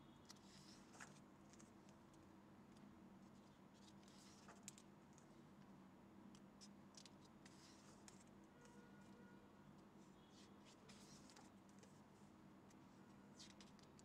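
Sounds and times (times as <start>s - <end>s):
book pages rustling and turning: 0.3s - 2.0s, 3.4s - 4.9s, 6.9s - 8.3s, 10.4s - 12.0s, 13.4s - 14.0s.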